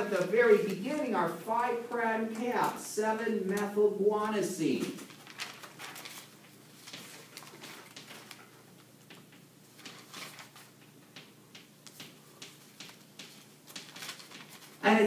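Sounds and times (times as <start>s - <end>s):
chalk tapping and scratching: 11.1s - 14.6s.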